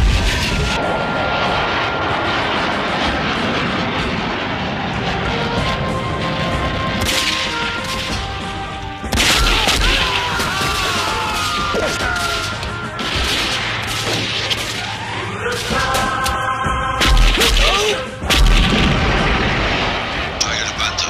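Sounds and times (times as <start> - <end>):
loud explosion: 0.0 - 8.3, 17.0 - 20.9
blasts and gunfire: 0.0 - 21.0.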